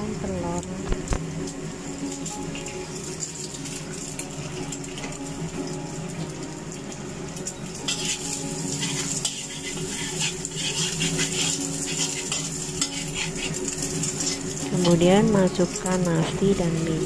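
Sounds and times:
steady low hum: 0:00.0 - 0:17.0
egg sizzling in oil: 0:01.2 - 0:17.0
metal spatula scraping pan: 0:07.9 - 0:14.5.

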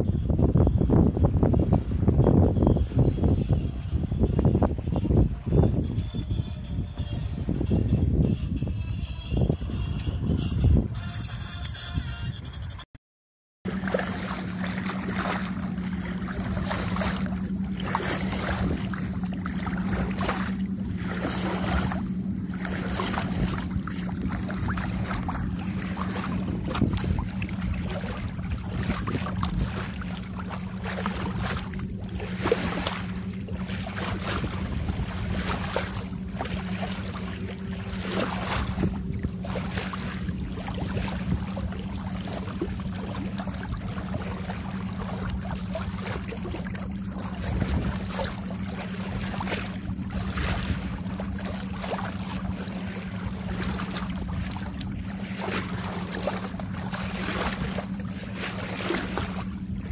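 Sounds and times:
bow wave splashing along hull: 0:00.0 - 0:12.8, 0:13.6 - 0:59.9
steady low hum: 0:13.7 - 0:59.9.

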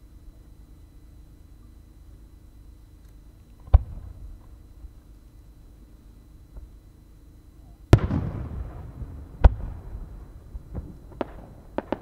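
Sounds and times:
small firework pops: 0:07.9 - 0:09.9, 0:10.7 - 0:12.0
firework shells booming: 0:07.9 - 0:12.0.

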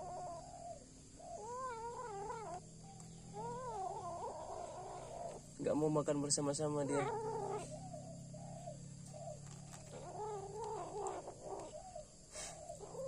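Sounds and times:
kitten growling: 0:01.4 - 0:02.7, 0:03.3 - 0:05.5, 0:06.7 - 0:07.9, 0:09.4 - 0:13.0.

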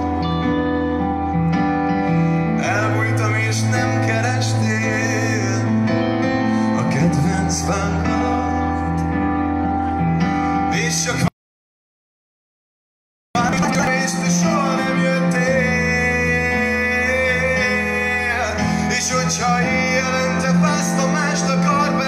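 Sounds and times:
live band with man singing: 0:02.1 - 0:05.9, 0:06.5 - 0:09.4, 0:10.3 - 0:11.3, 0:13.4 - 0:22.0.

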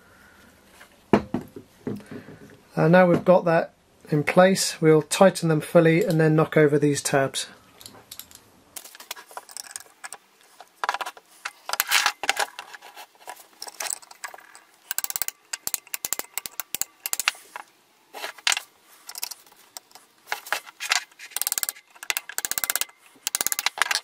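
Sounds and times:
hand tools clicking and scraping: 0:07.8 - 0:24.0.

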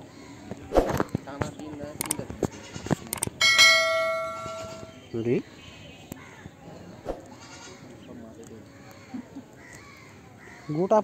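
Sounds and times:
mouse clicks: 0:02.0 - 0:02.2, 0:03.1 - 0:03.4
notification bell ding: 0:03.4 - 0:05.0.

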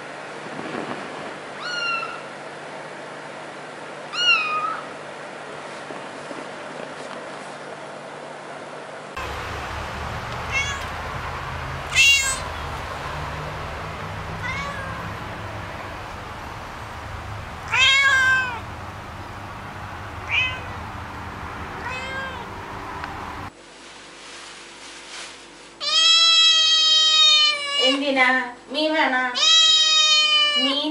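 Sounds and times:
cat meowing: 0:01.6 - 0:02.3, 0:04.1 - 0:04.9, 0:10.1 - 0:18.7, 0:20.0 - 0:20.9, 0:21.8 - 0:22.6, 0:25.8 - 0:28.0, 0:29.4 - 0:30.8
steady low rumble: 0:09.2 - 0:23.5.

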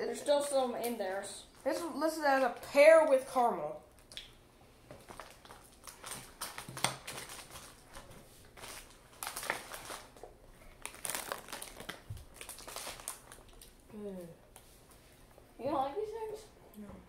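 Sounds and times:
plastic packaging crinkling: 0:05.0 - 0:13.8.

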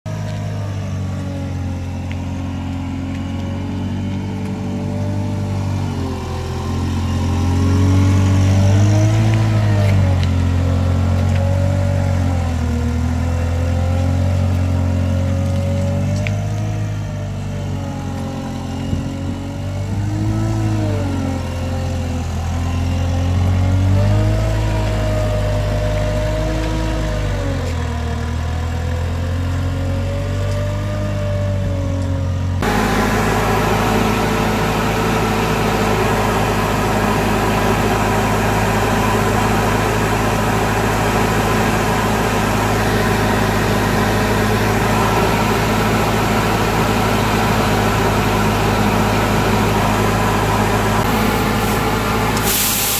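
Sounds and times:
street sweeper engine running: 0:00.1 - 0:52.9
sweeper suction hiss: 0:51.1 - 0:52.9.

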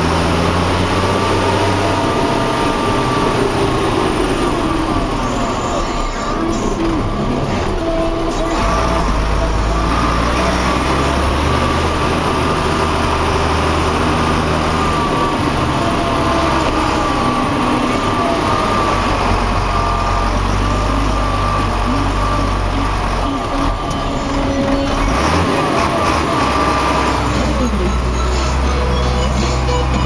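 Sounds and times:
tractor engine droning: 0:00.0 - 0:30.0.

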